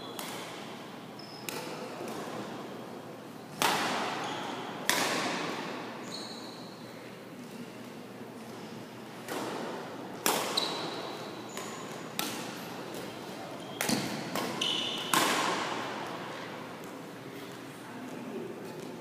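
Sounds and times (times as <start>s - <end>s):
rackets hitting shuttlecock: 0.1s - 0.6s, 3.5s - 5.8s, 9.2s - 13.2s, 13.8s - 16.2s
shoes squeaking on court floor: 1.2s - 2.4s, 4.1s - 4.8s, 6.0s - 6.8s, 10.5s - 15.2s.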